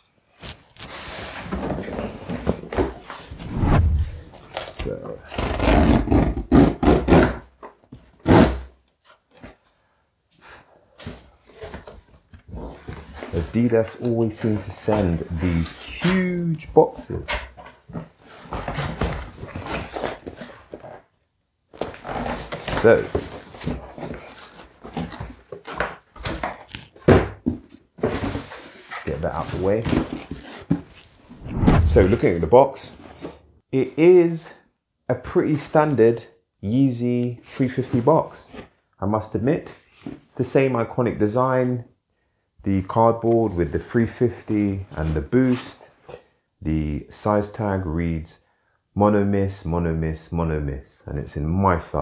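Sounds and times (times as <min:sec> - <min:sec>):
cardboard boxes rustling and knocking: 0:23.0 - 0:28.8, 0:29.5 - 0:30.9.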